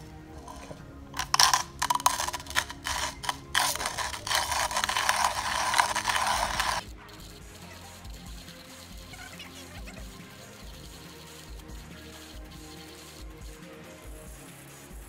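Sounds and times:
hand coffee grinder grinding: 0.0 - 6.8.

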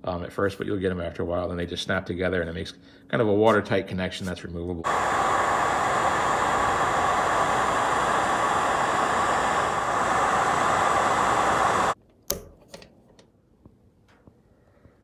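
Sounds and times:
loud rushing fan noise: 4.8 - 12.0.

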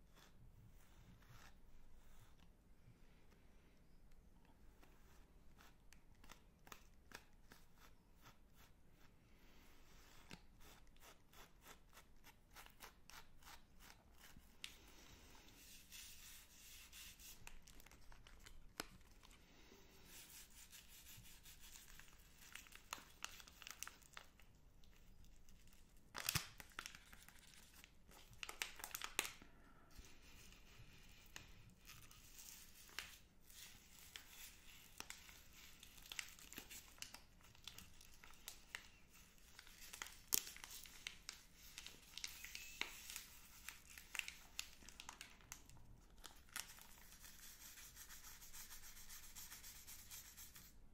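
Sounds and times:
plastic wrappers crinkling: 21.9 - 29.4, 34.1 - 47.1.

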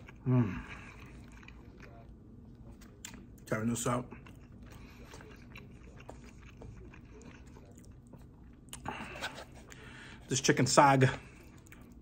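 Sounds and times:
low steady hum: 0.0 - 12.0
person chewing food: 0.0 - 12.0.

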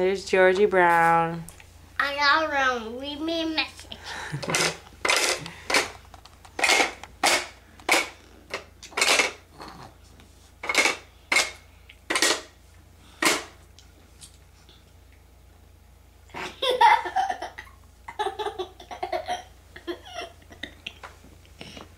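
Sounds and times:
toddler puffing through cup spout: 6.6 - 8.2, 13.2 - 13.6.

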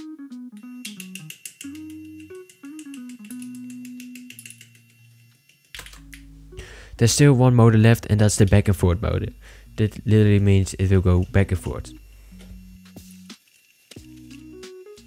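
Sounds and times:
plucked guitar melody: 0.0 - 4.3.

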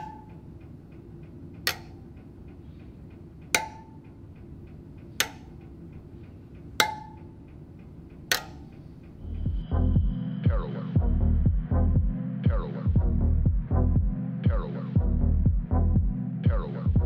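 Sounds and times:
wrench tapping metal spokes: 0.0 - 9.2.

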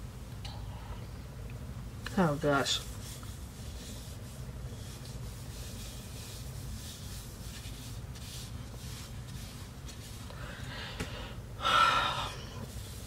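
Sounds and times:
steady low hum: 0.0 - 13.0
towelette scrubbing skin: 2.8 - 10.3.

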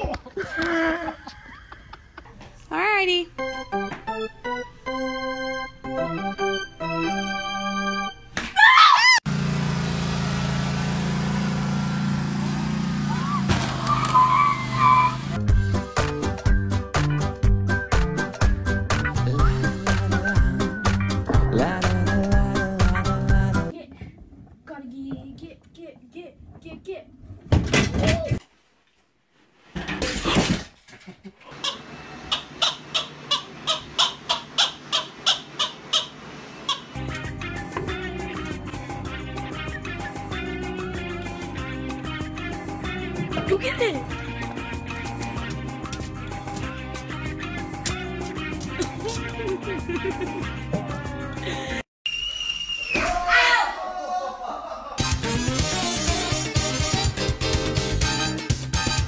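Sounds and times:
lawn mower engine droning: 9.3 - 15.4
loud shriek: 13.1 - 15.2.

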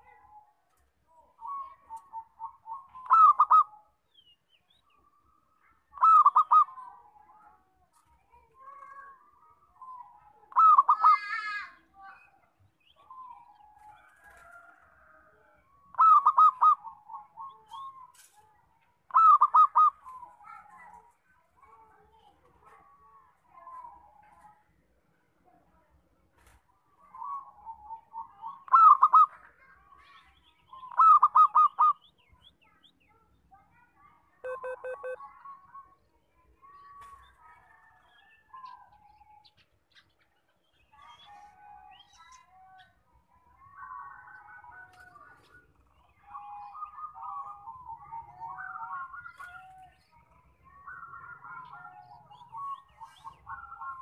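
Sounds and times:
faint bird chirps: 0.0 - 24.6, 26.9 - 54.0
dove cooing: 1.4 - 3.8, 6.0 - 6.8, 15.9 - 17.8, 19.1 - 20.2, 30.9 - 32.0, 34.5 - 35.2.

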